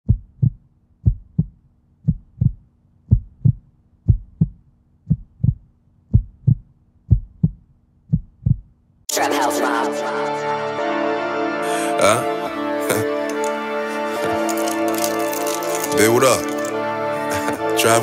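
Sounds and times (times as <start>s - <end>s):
heartbeat thumps: 0.0s - 8.8s.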